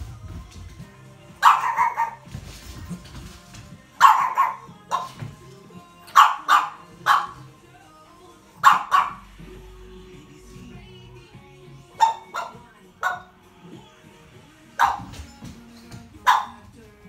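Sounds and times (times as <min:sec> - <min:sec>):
small dog barking: 0:01.4 - 0:02.3, 0:04.0 - 0:05.2, 0:06.1 - 0:07.4, 0:08.6 - 0:09.2, 0:12.0 - 0:13.3, 0:14.8 - 0:15.2, 0:16.2 - 0:16.6.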